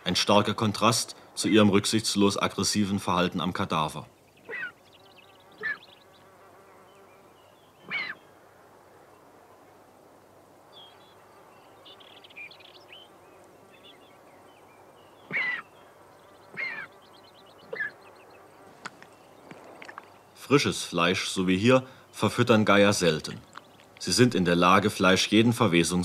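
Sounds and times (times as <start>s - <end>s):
vulture chick begging cries: 4.4s - 4.9s, 5.5s - 6.0s, 7.8s - 8.2s, 15.2s - 15.8s, 16.5s - 17.0s, 17.6s - 18.0s.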